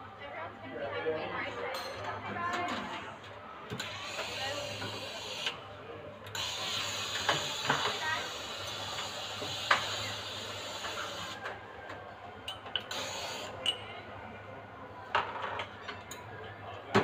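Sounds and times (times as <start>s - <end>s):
cups and metal clinking: 12.4s - 14.0s.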